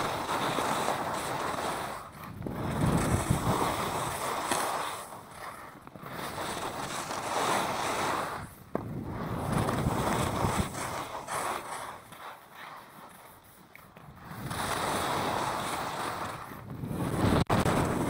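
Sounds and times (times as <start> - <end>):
wind rushing over microphone: 0.0 - 5.1, 6.0 - 11.4, 14.1 - 18.0
skis scraping over snow: 0.0 - 18.0.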